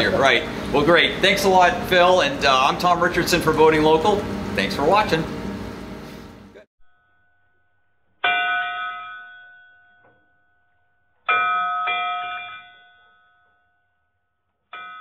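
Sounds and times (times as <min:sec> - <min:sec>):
bell ringing: 0:08.2 - 0:10.6, 0:11.3 - 0:13.9.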